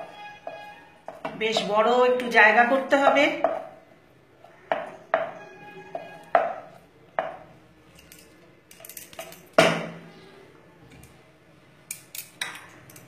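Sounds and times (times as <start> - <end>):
spatula knocking on pan: 0.0 - 1.8, 3.4 - 3.8, 4.7 - 7.4.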